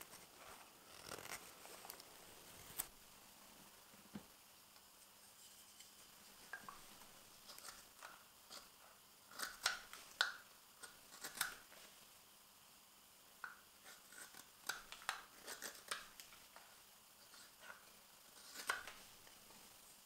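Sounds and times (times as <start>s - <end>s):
knife carving wood shavings: 0.0s - 2.9s, 5.6s - 11.9s, 13.8s - 19.4s.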